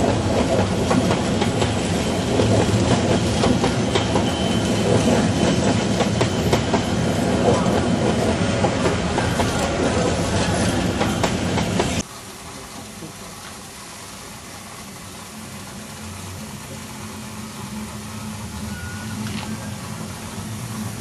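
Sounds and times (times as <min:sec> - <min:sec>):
railway carriages clattering over joints: 0:00.0 - 0:13.6
steam locomotive hissing: 0:00.0 - 0:21.0.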